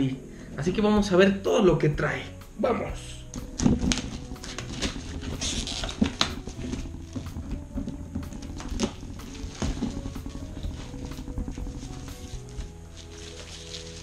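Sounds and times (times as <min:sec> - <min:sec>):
plastic shrink-wrap crinkling: 0:03.5 - 0:14.0.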